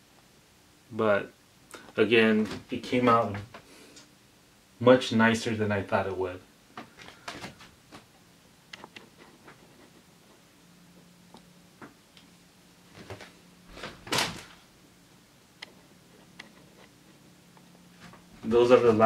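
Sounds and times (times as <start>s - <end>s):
faint low hum: 0.0s - 19.0s
vinyl sheet rustling and clicking: 12.9s - 14.6s.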